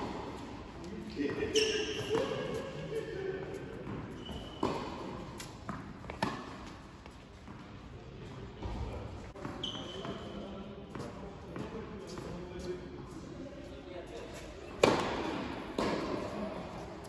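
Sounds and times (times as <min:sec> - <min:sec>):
racket hitting tennis ball: 0:03.8 - 0:06.8, 0:14.8 - 0:16.3
tennis ball bouncing on court: 0:03.8 - 0:07.6, 0:14.8 - 0:16.2.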